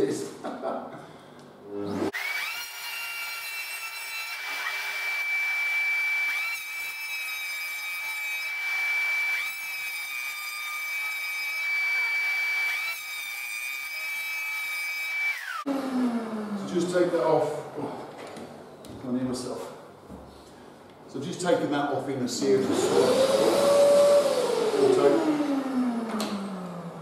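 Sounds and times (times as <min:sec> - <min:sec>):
electric hand planer whining: 0:01.9 - 0:10.0, 0:10.6 - 0:16.7, 0:22.6 - 0:27.0.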